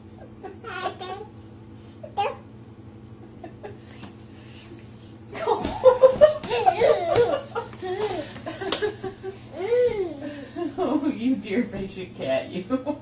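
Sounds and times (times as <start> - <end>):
person laughing: 5.4 - 10.9.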